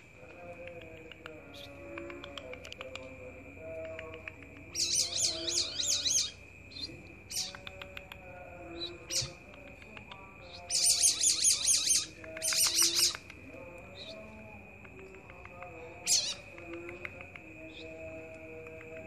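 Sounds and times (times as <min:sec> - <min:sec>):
songbird warbling trills: 0:03.8 - 0:14.3, 0:16.0 - 0:16.8.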